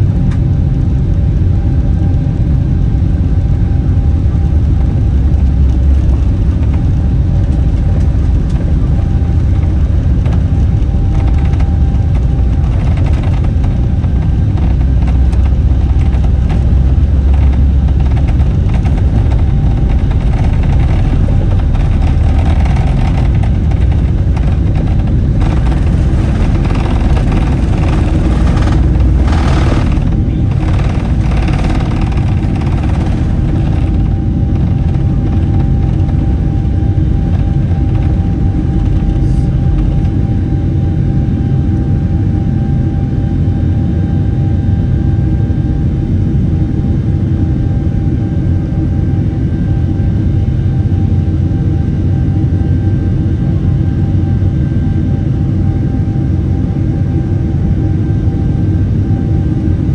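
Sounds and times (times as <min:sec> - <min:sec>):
wheels rumbling on runway: 0:00.0 - 0:42.4
jet engines roaring in cabin: 0:00.0 - 0:59.9.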